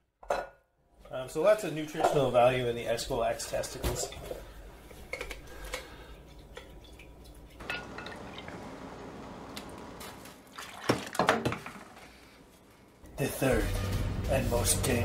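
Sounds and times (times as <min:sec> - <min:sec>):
liquid pouring and dripping: 0:05.8 - 0:09.8, 0:10.4 - 0:11.4.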